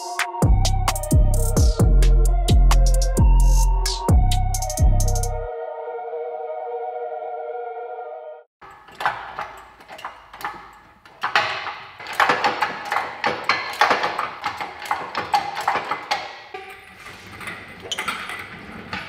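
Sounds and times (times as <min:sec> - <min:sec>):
metallic clanks and rattles: 0:08.6 - 0:16.5.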